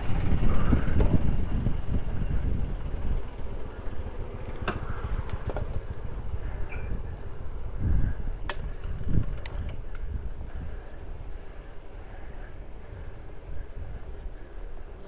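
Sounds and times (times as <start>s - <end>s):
road noise: 0.0s - 15.0s
wind on microphone: 0.0s - 15.0s
sharp bicycle clicks: 4.4s - 6.3s, 8.4s - 10.2s.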